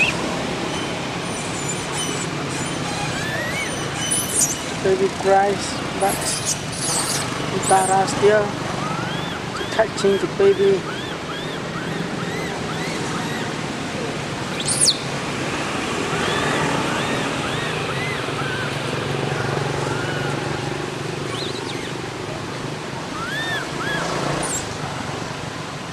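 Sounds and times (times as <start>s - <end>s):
sharp rising whistle: 0.0s - 4.7s.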